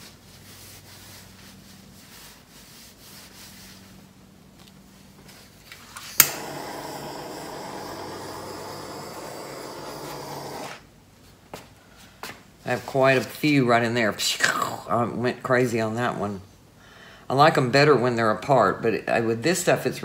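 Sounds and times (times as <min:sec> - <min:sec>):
igniter click: 0:06.2 - 0:07.4
torch flame hissing: 0:06.2 - 0:10.9.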